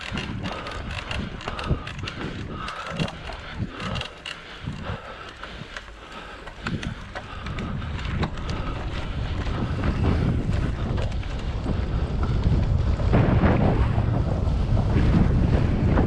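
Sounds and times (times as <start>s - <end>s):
short clicks and rattles: 0.0s - 9.8s
bike tyre rumble on dirt: 0.0s - 16.0s
wind buffeting microphone: 0.0s - 16.0s.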